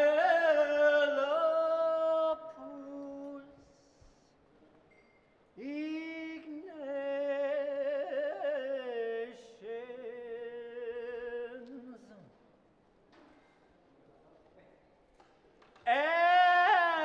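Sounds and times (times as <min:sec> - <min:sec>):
person singing a chant: 0:00.0 - 0:04.2, 0:15.8 - 0:17.0.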